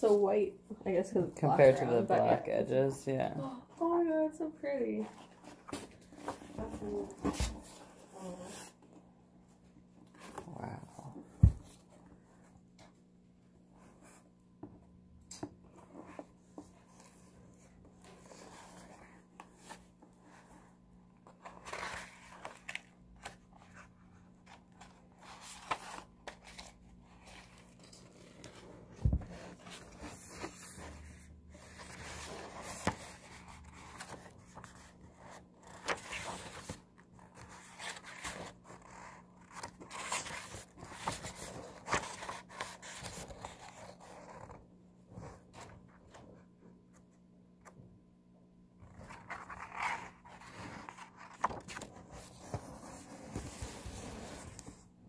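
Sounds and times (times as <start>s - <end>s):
book pages rustling: 15.4s - 47.8s, 48.8s - 55.0s.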